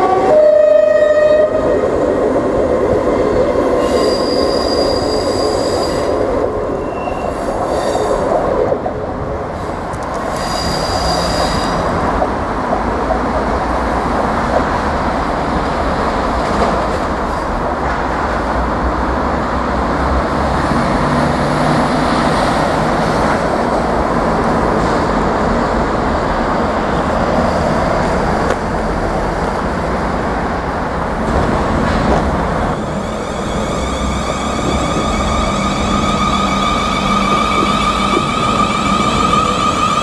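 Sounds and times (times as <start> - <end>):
diesel train engines rumbling: 0.0 - 40.0
wheels squealing: 32.7 - 40.0.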